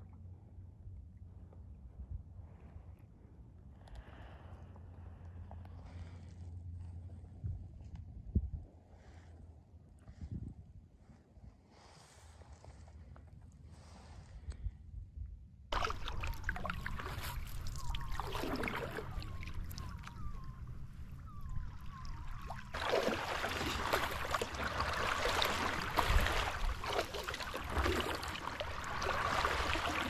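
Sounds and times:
water swishing and splashing: 15.7s - 30.0s.

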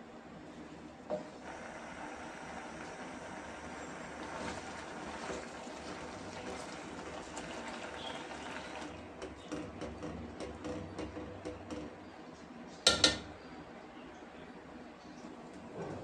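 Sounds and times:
spoon knocking metal pot: 12.9s - 13.3s.

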